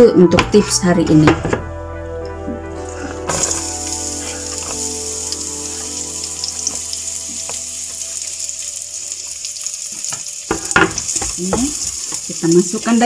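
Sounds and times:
onion sizzling in a frying pan: 0:03.3 - 0:13.0.

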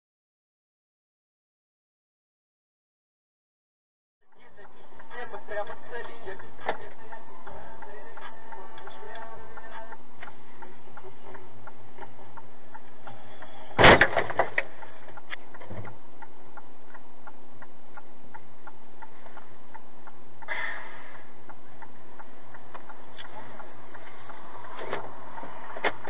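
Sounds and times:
turn signal ticking: 0:04.3 - 0:26.0
vehicle crash bang: 0:13.8 - 0:14.6.

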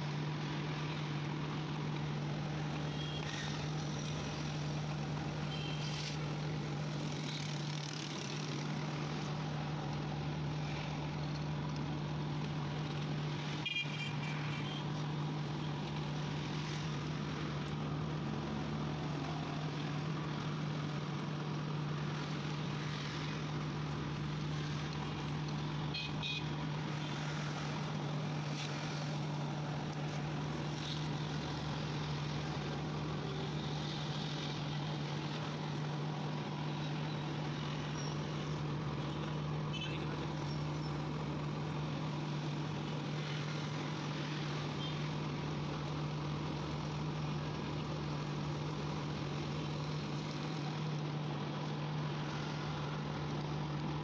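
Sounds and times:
street traffic noise: 0:00.0 - 0:54.0
vehicle horn toots: 0:26.0 - 0:26.4.

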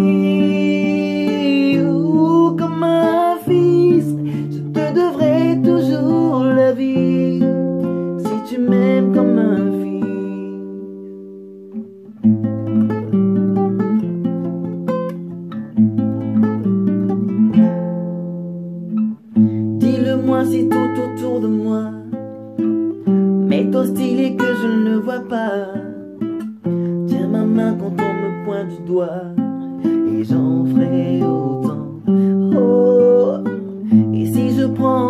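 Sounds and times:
person singing wordlessly: 0:00.0 - 0:11.0, 0:19.7 - 0:35.0
acoustic guitar chords: 0:00.0 - 0:35.0.

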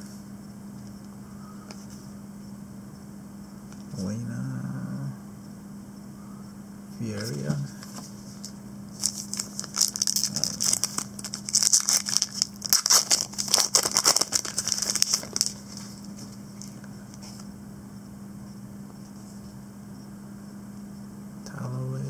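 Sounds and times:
foil wrapper crinkling and tearing: 0:09.0 - 0:16.8.

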